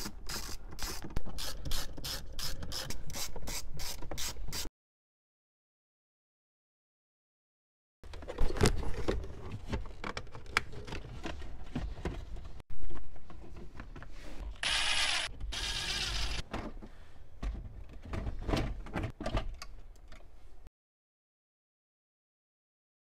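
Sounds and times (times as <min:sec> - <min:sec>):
cordless drill whirring: 0:14.6 - 0:16.4.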